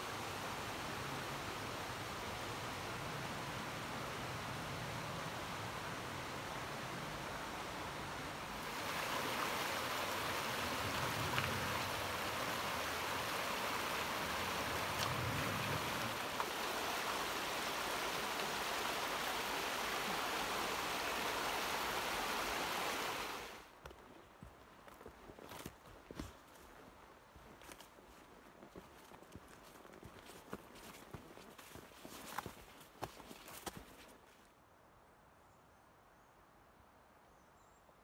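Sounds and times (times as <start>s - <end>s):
rushing creek water: 0.0s - 23.8s.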